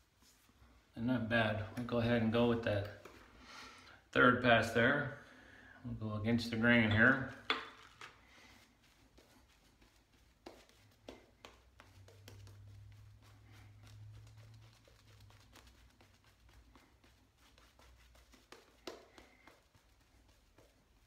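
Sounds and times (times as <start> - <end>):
shaving brush swishing: 6.4 - 21.0.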